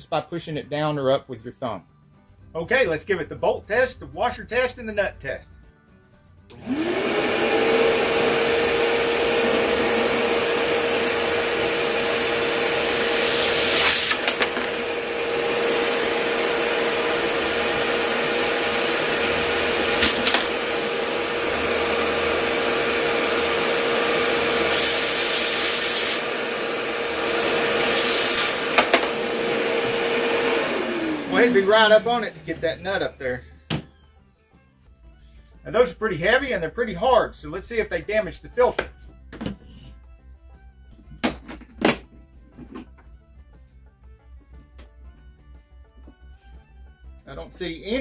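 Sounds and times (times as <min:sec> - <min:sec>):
shop vacuum whining: 0:06.4 - 0:34.4.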